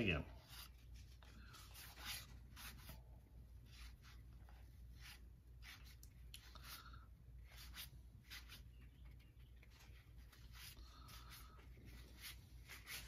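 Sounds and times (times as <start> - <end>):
cardboard cards sliding swishes: 0.4 - 3.0, 9.6 - 13.0.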